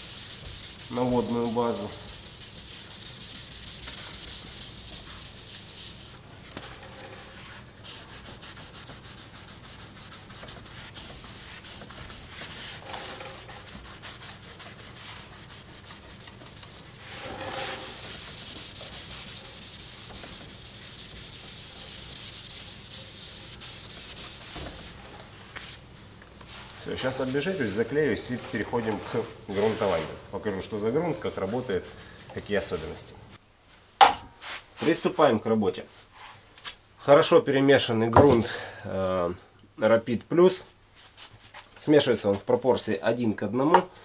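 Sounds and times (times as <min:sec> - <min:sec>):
hand sanding painted panel: 0:00.0 - 0:06.2, 0:07.0 - 0:25.0, 0:27.0 - 0:30.2, 0:31.2 - 0:33.0.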